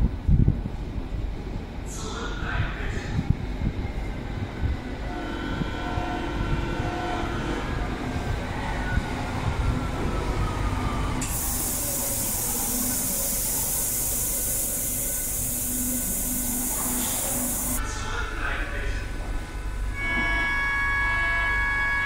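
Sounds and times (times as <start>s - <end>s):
compressed air hiss: 11.2s - 17.8s
train motor whine braking: 11.2s - 17.8s.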